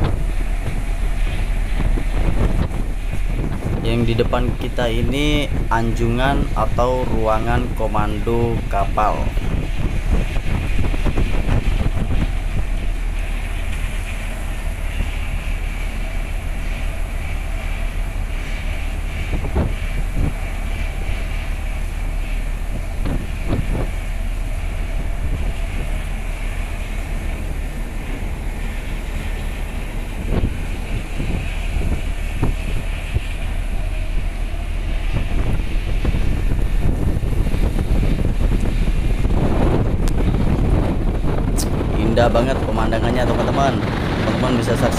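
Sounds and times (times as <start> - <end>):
ship noise: 0.0 - 44.9
wind buffeting microphone: 0.0 - 44.9.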